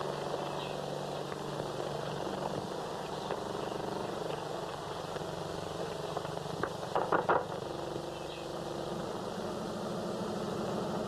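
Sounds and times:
horses' hoofbeats: 0.0s - 7.8s
old film soundtrack hiss: 0.0s - 11.0s.

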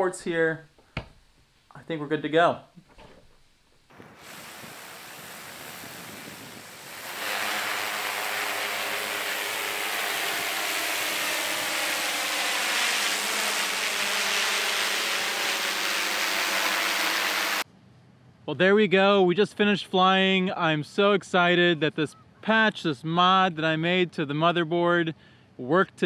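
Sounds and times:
drone propellers whirring: 4.0s - 17.6s.

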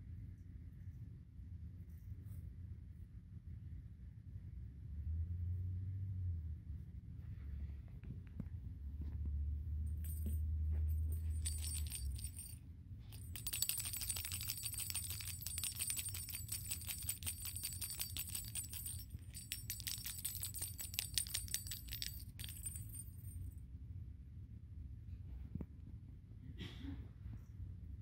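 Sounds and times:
cat toy bell jingling: 9.9s - 23.4s.

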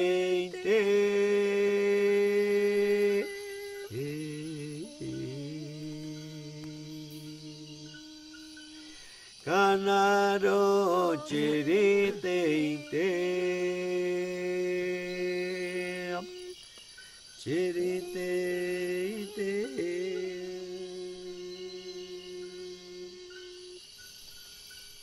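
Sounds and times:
person chanting: 0.0s - 16.6s, 17.5s - 23.8s.

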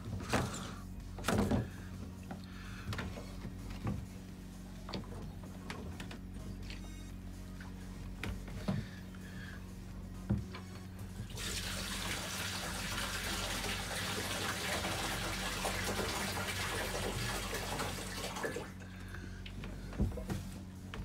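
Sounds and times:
water pouring into a tank: 11.3s - 18.8s.

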